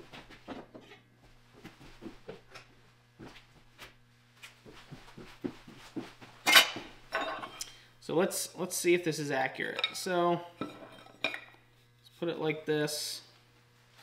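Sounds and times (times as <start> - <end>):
footsteps on shop floor: 0.0 - 7.6.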